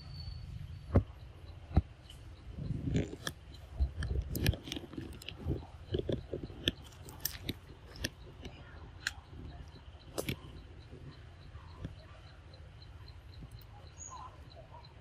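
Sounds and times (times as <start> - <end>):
monkey chewing fruit: 2.6 - 11.1.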